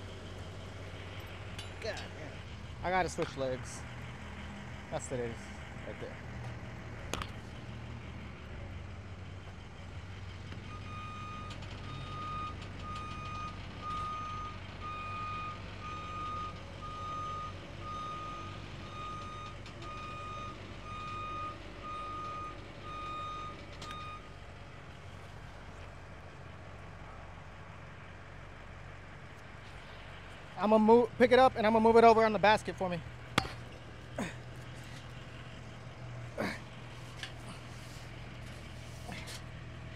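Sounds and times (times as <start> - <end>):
low engine hum: 0.0 - 39.9
vehicle backup alarm beeping: 10.6 - 24.4.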